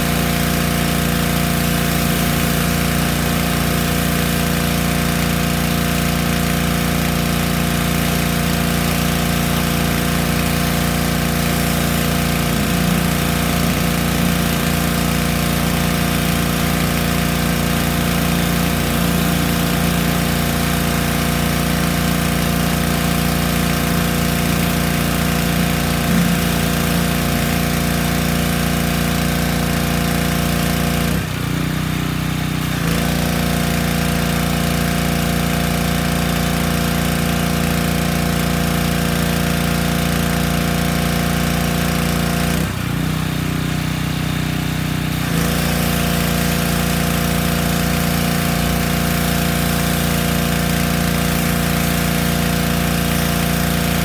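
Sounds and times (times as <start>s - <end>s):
high-pressure spray hiss: 0.0s - 28.7s
pressure washer engine running: 0.0s - 54.0s.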